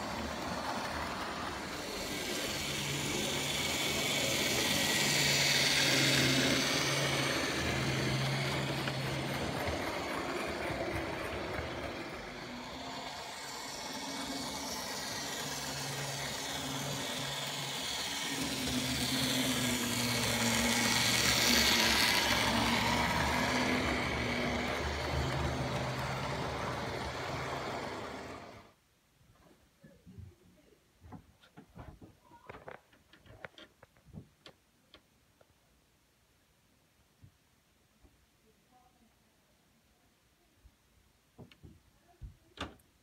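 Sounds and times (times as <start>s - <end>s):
wheels rattling on rails: 0.0s - 28.7s
model train motor hum: 0.0s - 28.8s.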